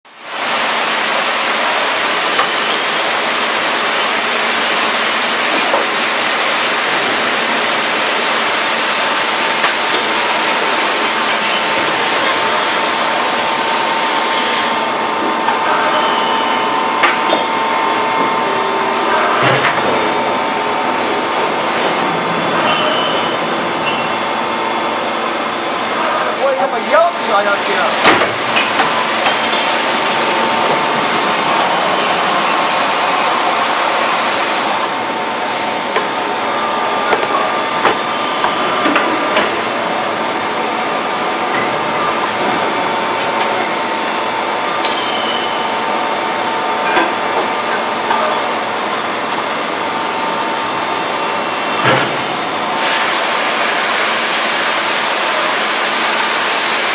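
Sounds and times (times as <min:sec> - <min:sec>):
machine steady hiss: 0:52.7 - 0:56.9.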